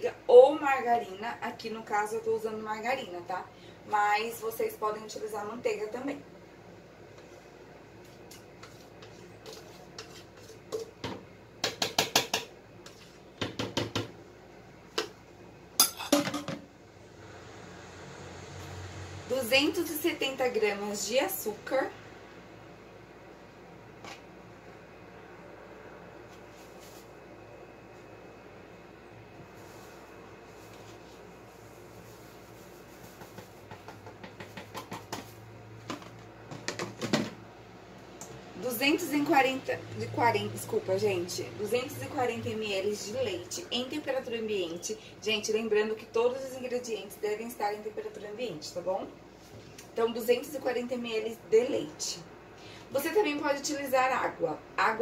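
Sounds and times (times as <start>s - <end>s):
spoon tapping and scraping container: 8.6s - 14.1s, 33.1s - 35.3s.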